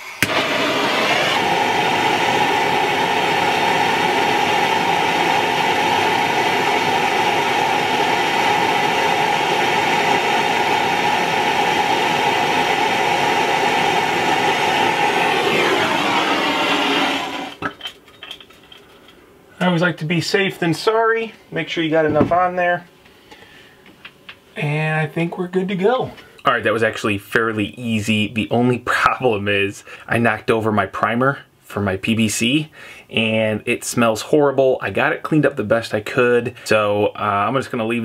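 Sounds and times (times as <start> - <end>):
gas torch hissing: 0.0 - 17.7.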